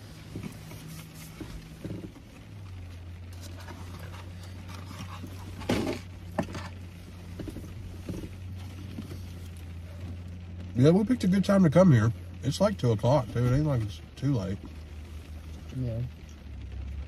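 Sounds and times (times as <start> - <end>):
car low hum: 0.0 - 17.0.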